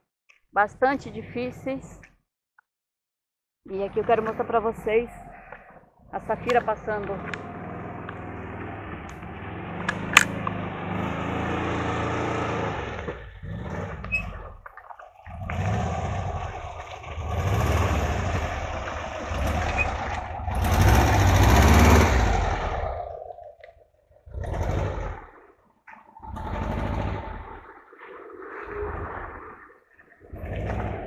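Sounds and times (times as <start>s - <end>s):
van engine revving in mud: 6.4s - 14.5s, 15.3s - 23.3s, 24.3s - 25.4s, 26.2s - 27.6s
sharp clicks: 9.8s - 10.6s.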